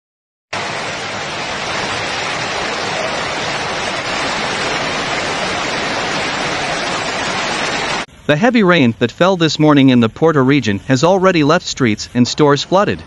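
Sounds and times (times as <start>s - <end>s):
floodwater rushing down stairs: 0.6s - 8.1s.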